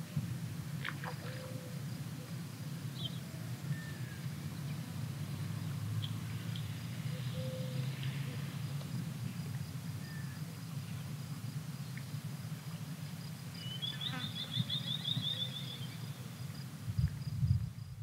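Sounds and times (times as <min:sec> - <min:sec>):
wind buffeting microphone: 0:16.8 - 0:18.0.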